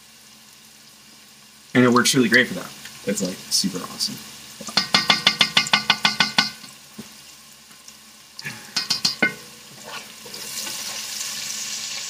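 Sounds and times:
vegetables sizzling: 0:00.0 - 0:12.0
utensil knocking in metal pot: 0:04.7 - 0:06.6, 0:08.7 - 0:09.5.

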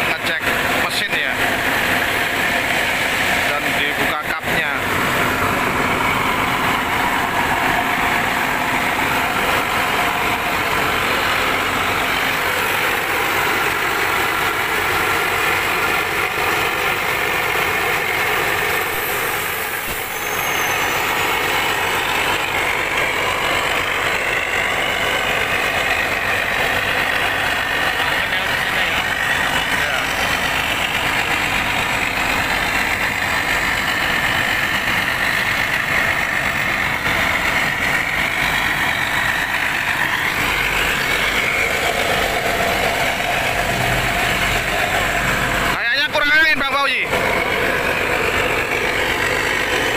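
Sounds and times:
diesel engine idling: 0:00.0 - 0:49.9.

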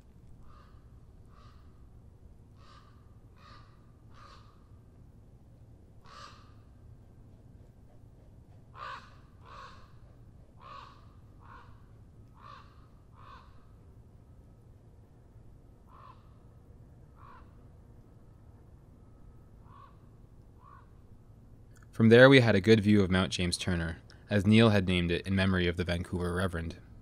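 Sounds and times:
faint low rumble: 0:00.0 - 0:27.0
crow cawing: 0:00.4 - 0:01.8, 0:02.6 - 0:04.7, 0:06.0 - 0:06.7, 0:08.7 - 0:13.7, 0:15.9 - 0:16.4, 0:17.2 - 0:17.6, 0:19.6 - 0:21.0.

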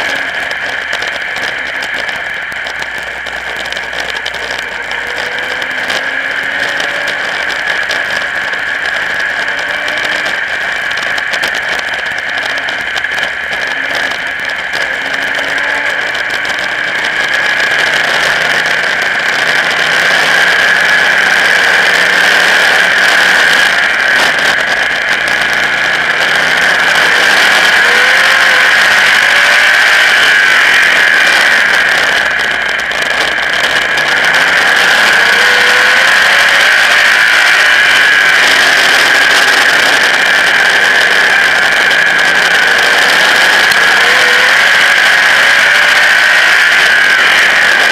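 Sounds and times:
race car engine: 0:00.0 - 0:47.9
steady rushing noise: 0:00.0 - 0:47.9.

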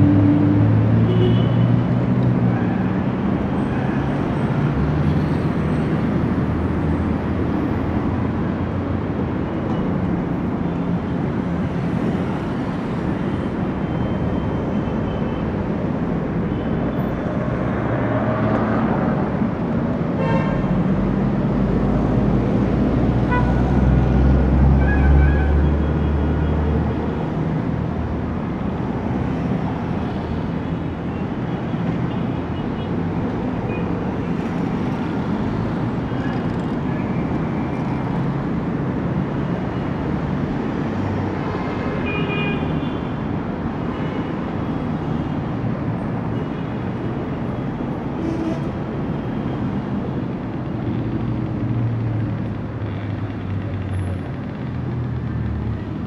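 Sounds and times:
passing cars and tyre noise: 0:00.0 - 0:56.0.

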